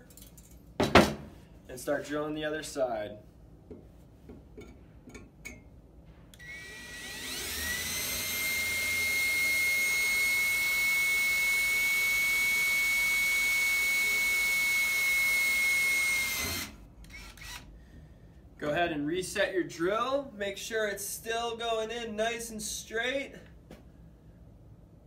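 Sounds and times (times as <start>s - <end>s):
cordless drill drilling through metal: 6.4s - 17.7s.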